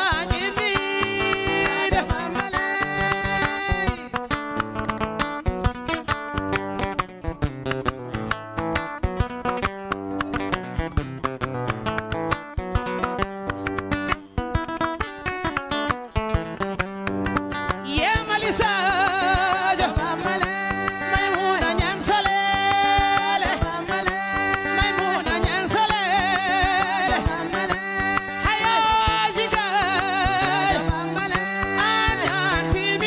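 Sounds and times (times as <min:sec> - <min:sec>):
woman singing: 0:00.0 - 0:04.8, 0:17.7 - 0:33.0
calabash drum beat: 0:00.0 - 0:33.0
plucked acoustic guitar: 0:00.0 - 0:33.0.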